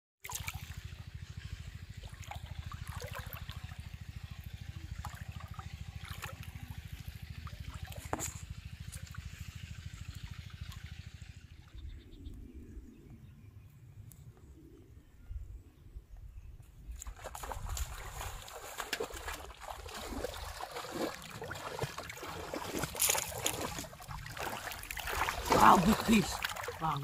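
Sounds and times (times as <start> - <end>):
water sloshing and splashing: 0.2 - 11.5, 17.0 - 27.0
low rumble: 1.0 - 27.0.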